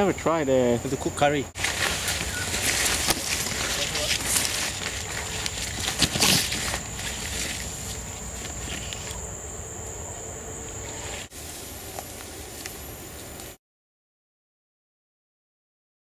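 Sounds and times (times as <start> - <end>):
high-pitched insect drone: 0.8 - 13.6
leaves rustling: 1.0 - 13.6
footsteps in undergrowth: 1.6 - 9.4, 10.6 - 13.6.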